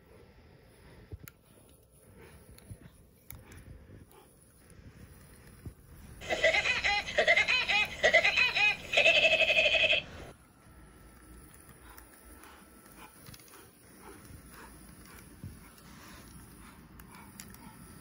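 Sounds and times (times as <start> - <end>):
cartoon laugh sound effect: 6.2 - 10.1.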